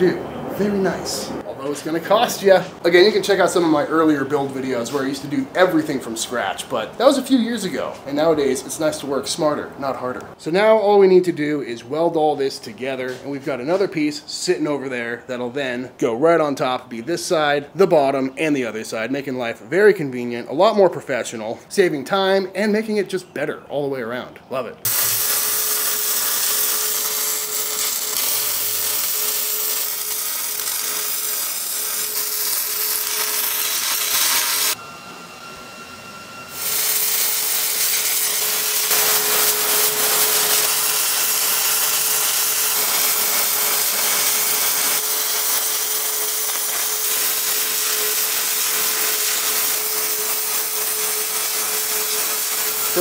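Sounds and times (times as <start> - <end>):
welding arc sizzling: 24.9 - 34.8, 35.8 - 53.0.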